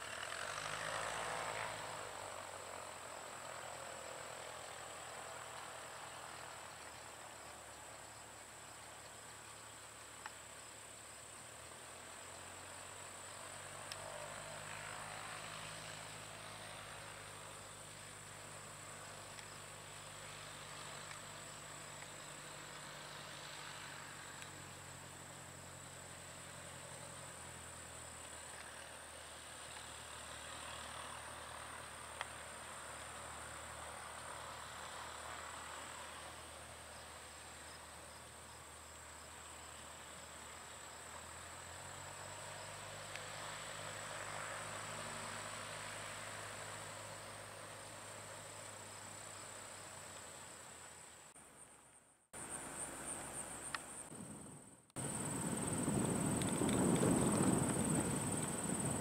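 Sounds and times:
insects trilling: 0:52.4 - 0:59.0.

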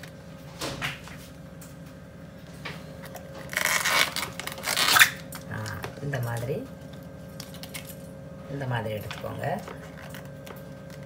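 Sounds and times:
banana bract tearing by hand: 0:03.4 - 0:05.3.

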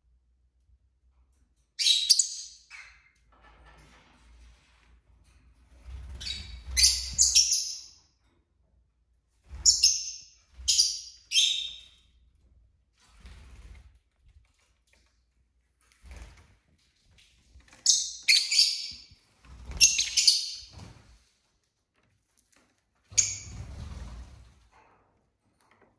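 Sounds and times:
lovebird chirping: 0:06.2 - 0:08.0, 0:09.6 - 0:11.9, 0:17.8 - 0:20.7.

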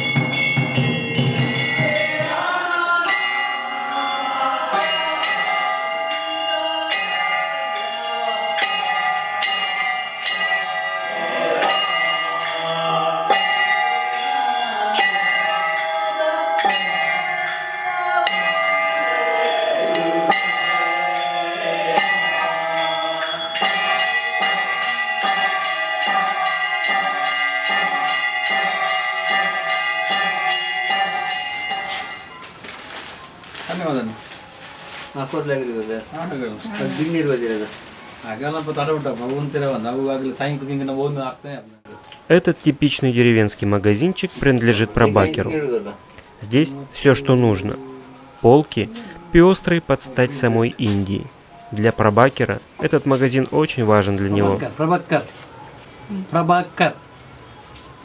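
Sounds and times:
ringing temple bells: 0:00.0 - 0:55.7.

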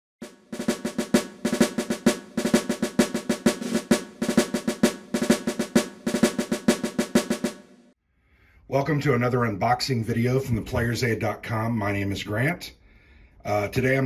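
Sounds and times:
fast snare drum rolls: 0:00.2 - 0:08.0.

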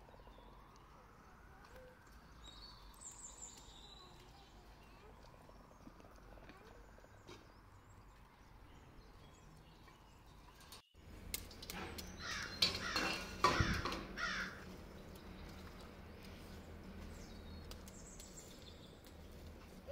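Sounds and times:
faint outdoor background: 0:00.0 - 0:19.9
crow cawing: 0:12.2 - 0:14.6.

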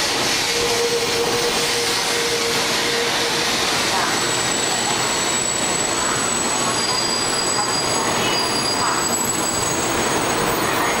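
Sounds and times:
train wheels and air rushing: 0:00.0 - 0:08.0.

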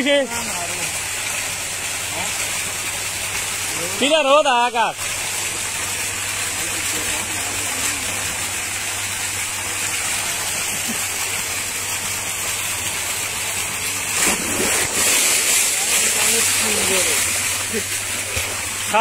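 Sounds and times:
water gushing into tank: 0:00.0 - 0:19.0
water splash: 0:13.6 - 0:19.0.

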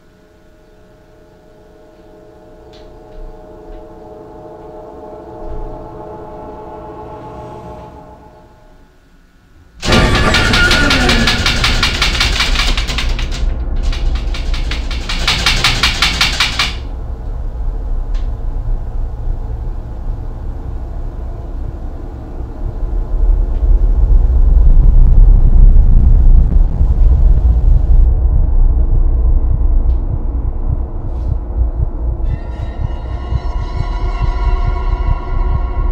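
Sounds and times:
door handle rattling: 0:09.8 - 0:16.9
deep low rumble: 0:16.9 - 0:35.9.

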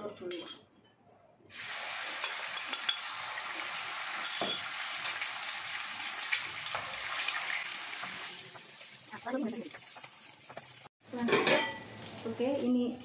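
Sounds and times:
egg sizzling in a frying pan: 0:01.5 - 0:11.0.

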